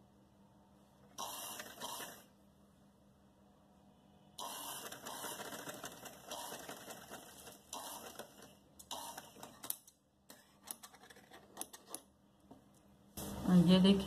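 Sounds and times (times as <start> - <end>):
sewing machine stitching: 1.2 - 2.3, 4.4 - 9.8.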